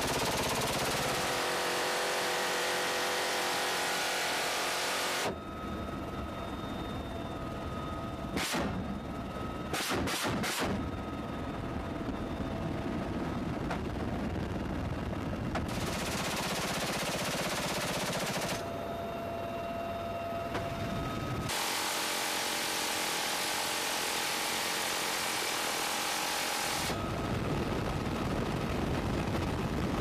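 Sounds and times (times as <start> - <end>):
helicopter rumble: 0.0 - 30.0
gunshots: 8.4 - 8.8, 9.7 - 10.8, 15.7 - 18.6
machine-gun fire: 8.4 - 8.8, 9.7 - 10.8, 15.7 - 18.6.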